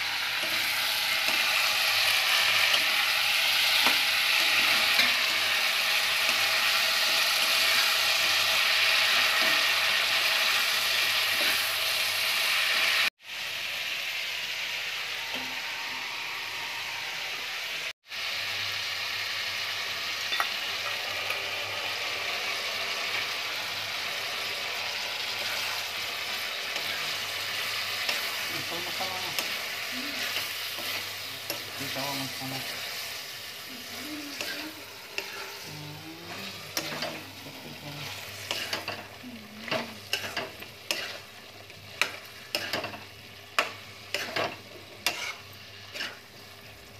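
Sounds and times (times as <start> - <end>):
vegetables sizzling in hot oil: 0.0 - 46.9
spoon scraping a pan: 25.0 - 46.4.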